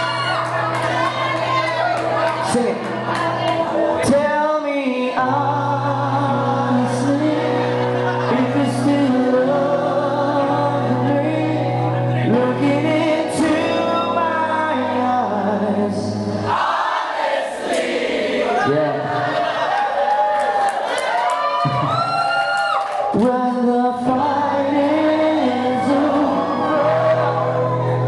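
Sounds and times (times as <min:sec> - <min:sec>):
bass guitar: 0:00.0 - 0:16.5, 0:23.2 - 0:28.0
electric guitars: 0:00.0 - 0:16.5, 0:21.6 - 0:28.0
person singing: 0:00.0 - 0:16.5, 0:23.1 - 0:28.0
drums: 0:21.6 - 0:22.4.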